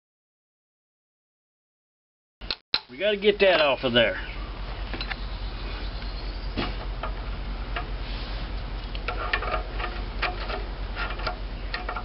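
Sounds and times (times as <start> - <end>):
steady low hum: 2.8 - 12.0.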